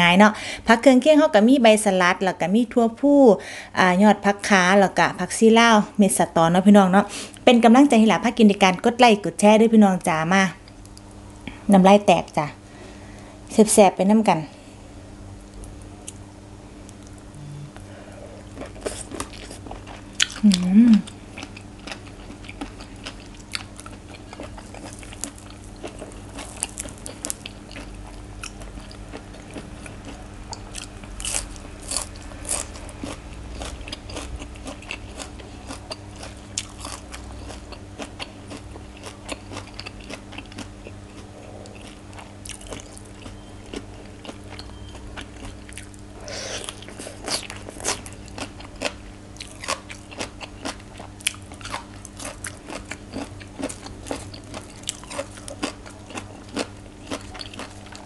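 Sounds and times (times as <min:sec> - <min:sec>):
faint steady hum: 0:00.0 - 0:58.0
wet chewing: 0:18.4 - 0:58.0.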